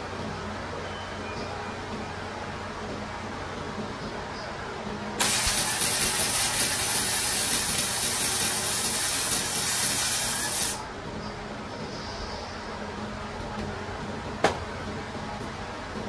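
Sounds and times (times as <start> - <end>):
electric arc welding hiss: 5.2 - 10.8.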